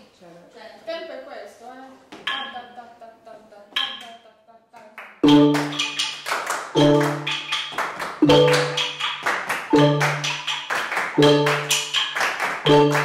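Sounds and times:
hand claps: 0:04.9 - 0:13.0
xylophones playing: 0:05.2 - 0:13.0.

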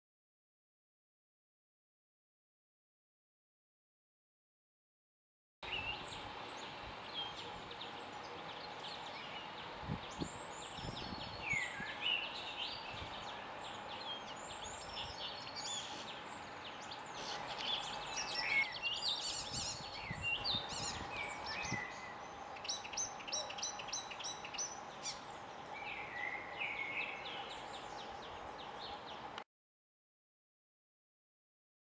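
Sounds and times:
warbler singing: 0:05.6 - 0:29.4.

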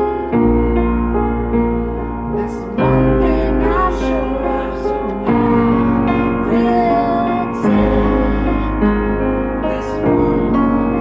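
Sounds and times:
upright piano chords: 0:00.0 - 0:11.0
woman singing: 0:02.4 - 0:09.0, 0:09.6 - 0:11.0.

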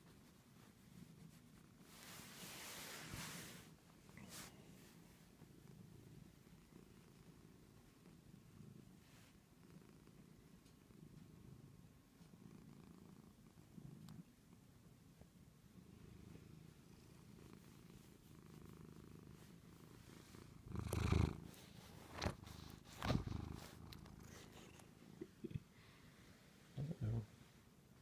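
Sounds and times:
cat purring: 0:00.0 - 0:27.8.

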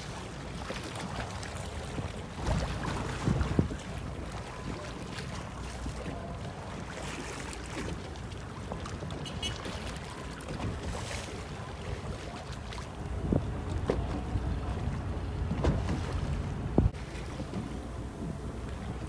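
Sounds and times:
wind rumbling on microphone: 0:00.0 - 0:07.0, 0:10.5 - 0:19.0
water lapping against quay: 0:00.0 - 0:19.0.

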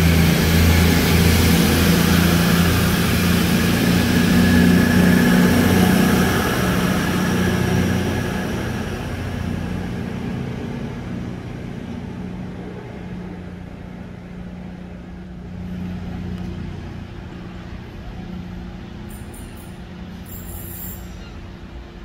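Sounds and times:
diesel train engine drone: 0:00.0 - 0:22.0.

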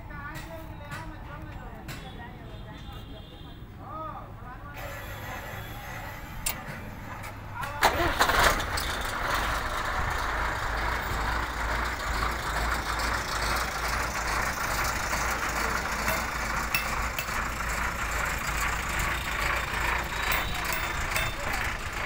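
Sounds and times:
diesel truck engine idling: 0:04.4 - 0:22.0.

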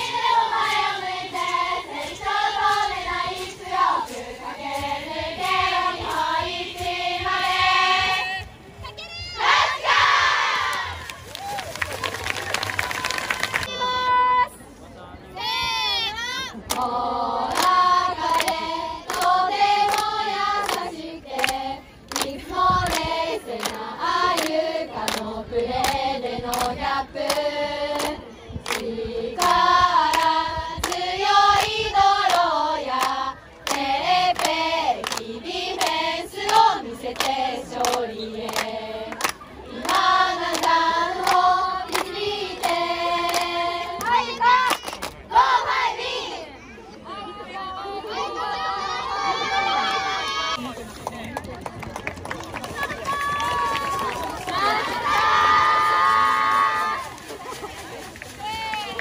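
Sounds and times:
rhythmic clapping: 0:00.0 - 0:08.2, 0:10.6 - 0:13.7, 0:16.6 - 0:45.6, 0:50.9 - 0:59.0
women singing in unison: 0:00.0 - 0:08.4, 0:16.7 - 0:44.6.

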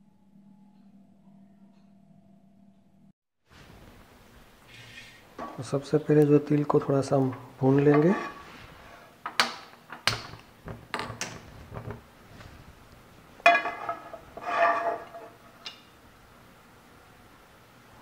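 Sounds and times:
frying pan clanking on burner grate: 0:13.4 - 0:15.9.

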